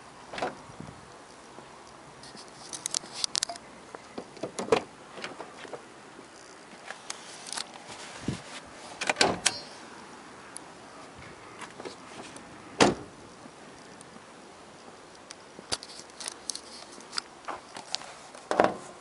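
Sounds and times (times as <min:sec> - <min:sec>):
car door clicks and knocks: 0:12.8 - 0:13.1.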